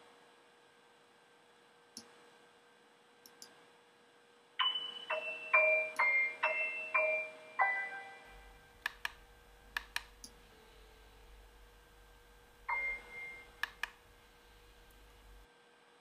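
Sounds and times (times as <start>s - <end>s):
faint steady hum: 0.0s - 16.0s
glockenspiel chime notes: 4.6s - 8.7s, 12.7s - 13.5s.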